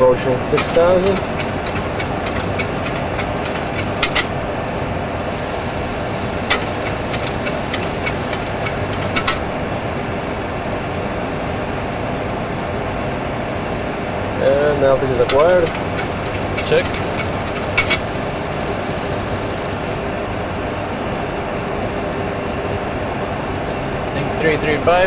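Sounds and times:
aircraft engine and airflow rush: 0.0 - 25.0
sharp clicks: 0.5 - 4.4, 5.4 - 9.6, 15.2 - 20.0.

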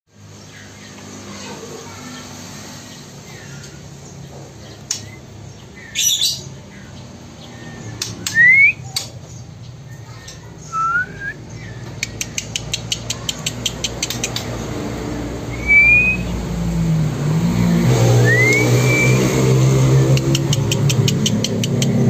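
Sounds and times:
bird squawking: 5.8 - 6.5
quick run of ticks: 11.9 - 14.7, 20.1 - 22.0
short rising whistles: 15.5 - 16.4, 18.1 - 19.5.

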